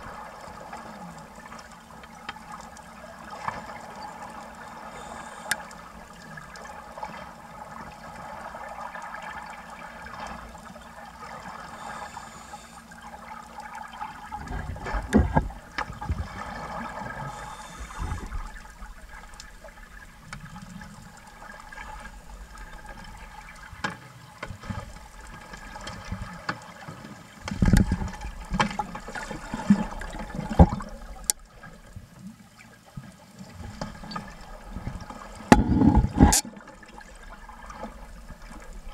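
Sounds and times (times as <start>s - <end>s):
underwater bubbling: 0.0s - 38.9s.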